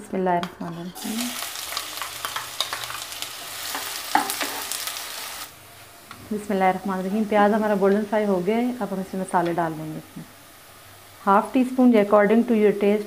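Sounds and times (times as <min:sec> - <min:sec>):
spatula scraping a wok: 0:00.6 - 0:01.3
onions sizzling in hot oil: 0:01.0 - 0:13.0.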